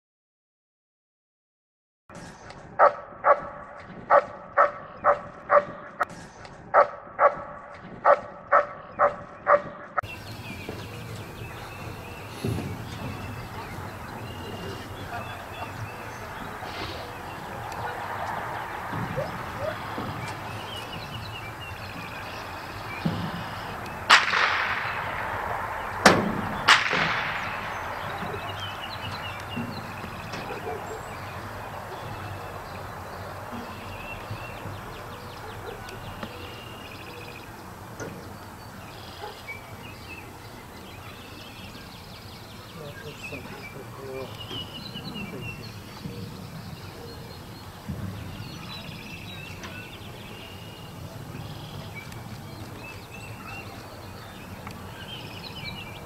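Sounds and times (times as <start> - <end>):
open-air background noise: 2.1 - 56.0
dog barking: 2.8 - 6.0, 6.7 - 10.0, 14.4 - 16.0, 30.4 - 31.2, 35.4 - 36.0, 39.2 - 39.5
blank pistol shots: 24.1 - 28.2.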